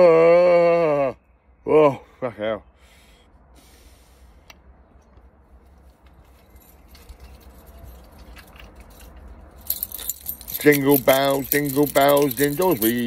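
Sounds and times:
keys jingling: 6.1 - 13.0.

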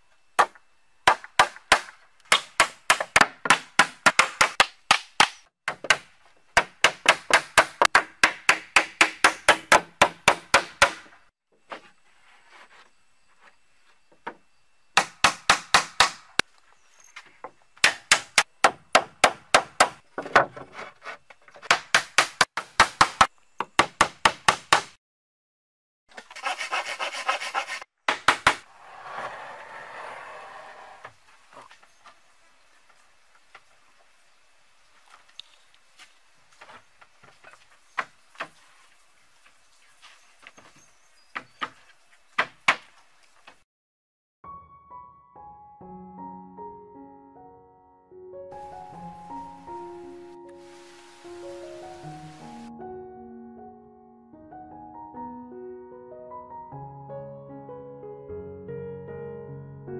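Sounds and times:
hatchet hammering nails into wood: 0.4 - 11.1, 15.0 - 16.4, 17.8 - 20.0, 21.6 - 25.0
scraping on wood: 20.2 - 21.7.

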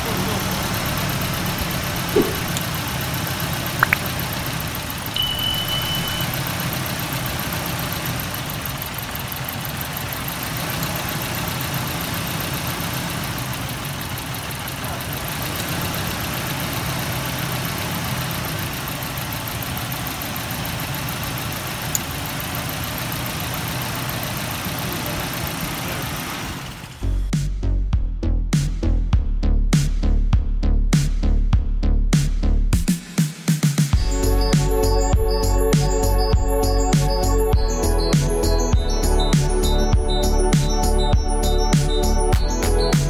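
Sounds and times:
car engine idling: 0.0 - 27.5, 34.0 - 43.0
sharp clicks: 3.8 - 4.1.

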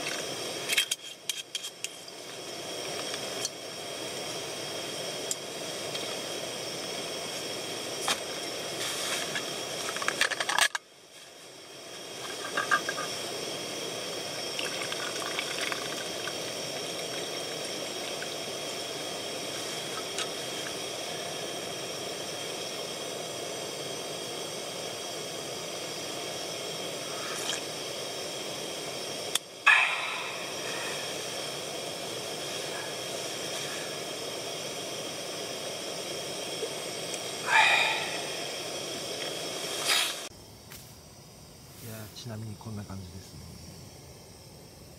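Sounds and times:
gas burners hissing: 0.0 - 44.9
person sighing: 37.4 - 38.4.

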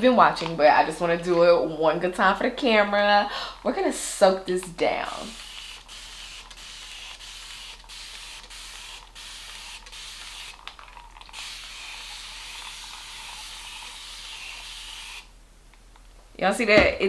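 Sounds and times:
spray bottle misting: 5.1 - 15.3.

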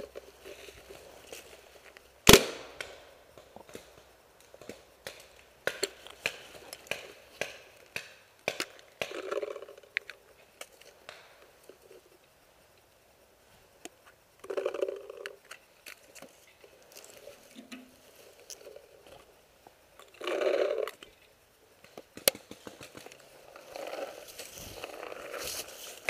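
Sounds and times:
sharp loud crack: 2.2 - 3.0
rustling in dry leaves: 22.4 - 26.0.

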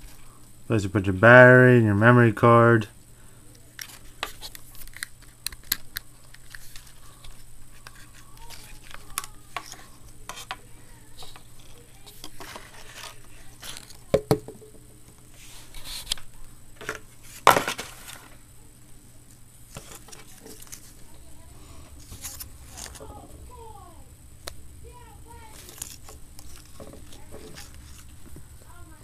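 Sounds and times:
faint low hum: 0.0 - 29.0.

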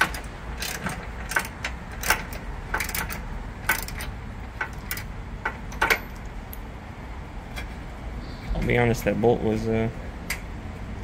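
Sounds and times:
socket ratchet clicking: 0.0 - 6.6.

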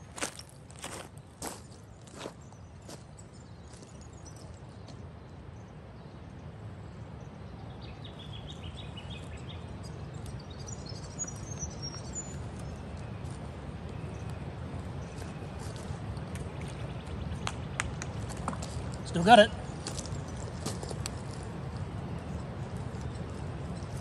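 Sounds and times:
footstep on gravel: 0.0 - 3.0, 18.1 - 21.6
low wind rumble: 0.0 - 24.0.

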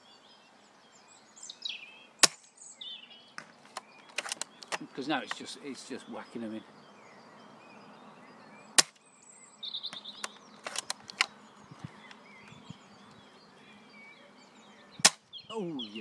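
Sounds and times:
birds chirping: 0.0 - 16.0
quiet clicks: 3.4 - 5.5, 9.9 - 12.7
airsoft rifle shot: 8.8 - 9.0.

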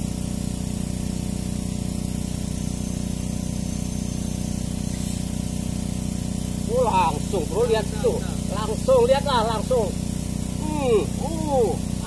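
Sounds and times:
engine humming: 4.7 - 12.0.

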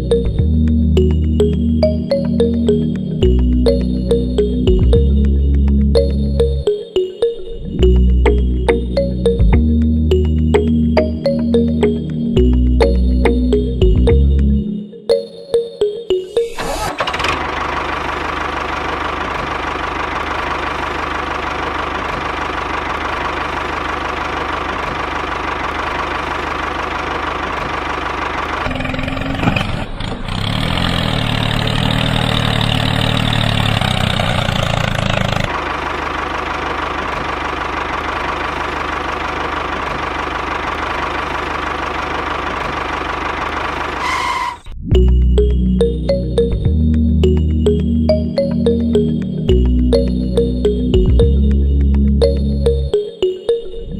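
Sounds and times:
tractor engine knocking: 16.9 - 44.5.

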